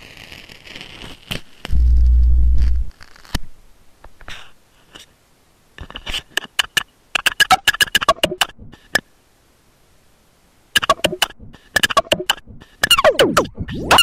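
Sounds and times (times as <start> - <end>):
microphone scratches: 0.0 - 3.5
low electrical hum: 0.1 - 7.2, 8.5 - 11.6
sharp clicks and taps: 10.8 - 13.0.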